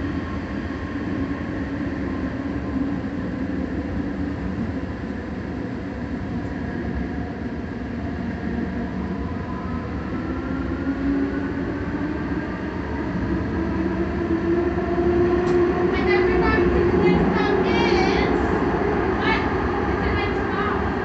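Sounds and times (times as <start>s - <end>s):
train wheels rumbling on rail: 0.0s - 21.0s
train whine rising in pitch: 0.0s - 21.0s.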